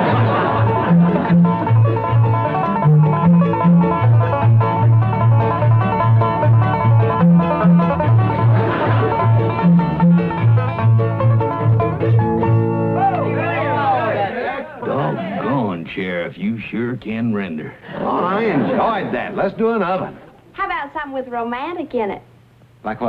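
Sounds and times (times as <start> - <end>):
upright bass alternating notes: 0.0 - 14.1
banjo picking: 0.0 - 15.7
acoustic guitar picking: 0.0 - 15.8.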